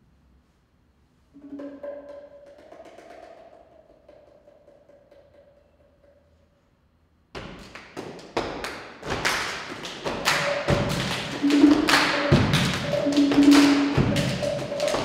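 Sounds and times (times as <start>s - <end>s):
hand drumming: 1.4s - 6.1s, 9.1s - 15.0s.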